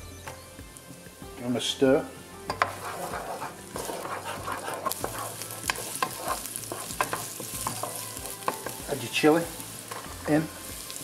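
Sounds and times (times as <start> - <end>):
onion sizzling in oil: 0.4 - 11.0
spatula tapping pan: 2.5 - 9.0.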